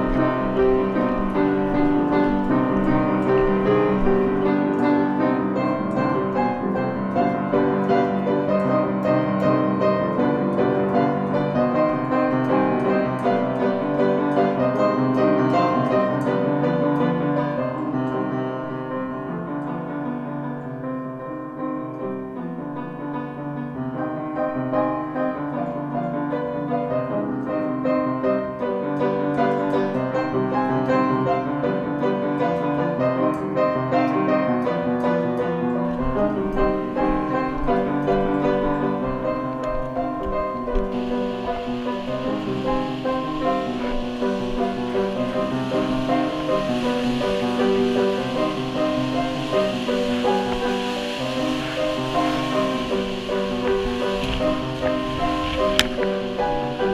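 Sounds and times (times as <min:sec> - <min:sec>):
piano music: 0:00.0 - 0:56.9.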